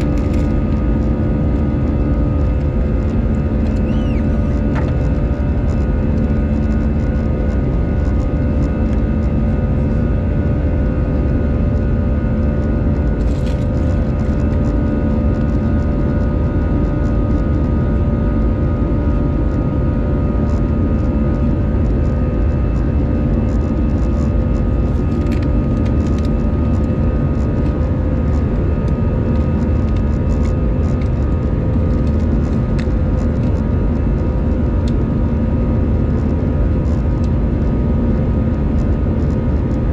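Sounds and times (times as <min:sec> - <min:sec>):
whining engine tones: 0:00.0 - 0:09.4
jet engine rumble in cabin: 0:00.0 - 0:39.9.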